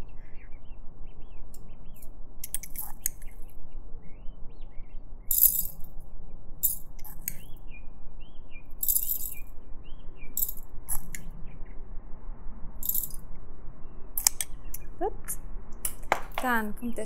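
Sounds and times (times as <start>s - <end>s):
spoon scraping pellets in glass: 6.6s - 7.4s, 10.4s - 11.1s.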